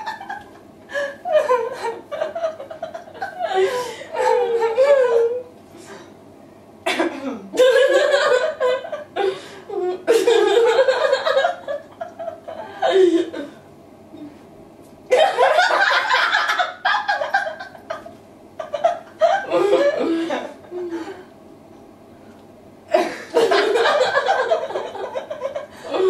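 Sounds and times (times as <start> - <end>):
women laughing: 0.0 - 5.5, 7.5 - 13.5, 15.1 - 21.3, 22.9 - 26.0.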